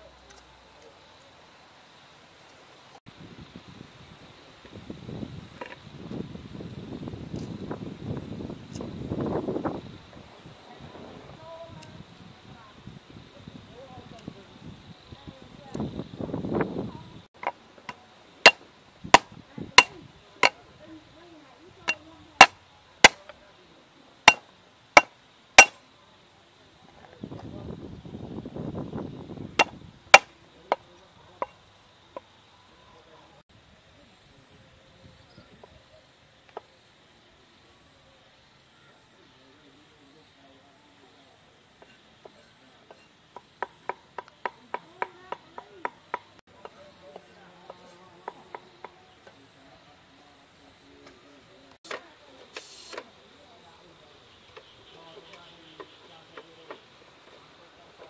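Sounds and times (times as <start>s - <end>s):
cleaver chopping on wooden board: 25.0s - 25.8s, 29.6s - 30.8s.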